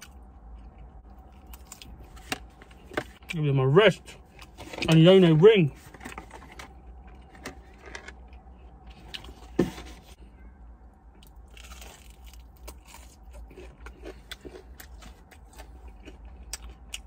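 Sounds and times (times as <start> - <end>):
crunching and chewing: 0.0 - 3.4, 5.8 - 9.6, 11.0 - 17.0.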